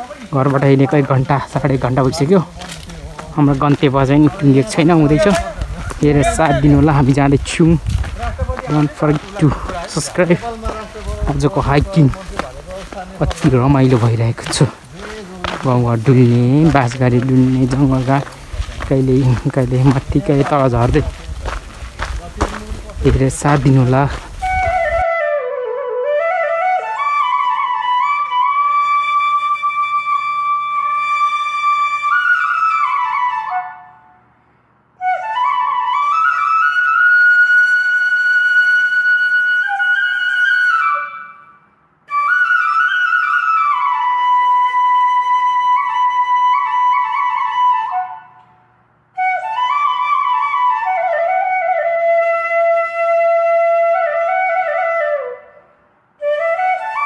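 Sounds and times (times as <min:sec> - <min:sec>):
slow solo flute melody: 0:23.4 - 0:34.2, 0:35.0 - 0:57.0.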